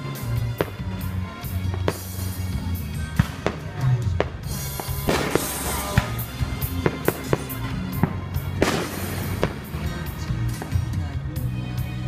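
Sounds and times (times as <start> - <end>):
fireworks bangs and cracks: 0.0 - 11.3
background music: 0.0 - 12.0.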